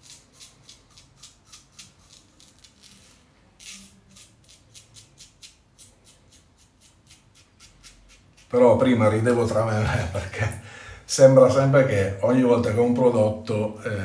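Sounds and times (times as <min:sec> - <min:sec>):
razor shaving strokes: 0:00.0 - 0:09.4.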